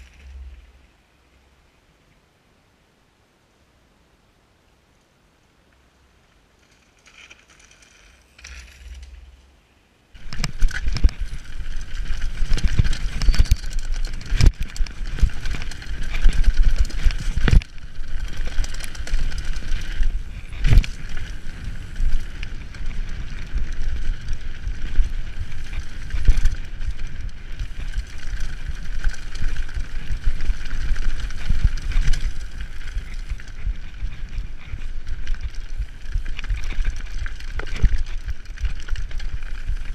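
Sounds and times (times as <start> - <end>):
mountain bike rushing downhill: 6.4 - 39.9
bike knocks and rattles: 10.2 - 39.9.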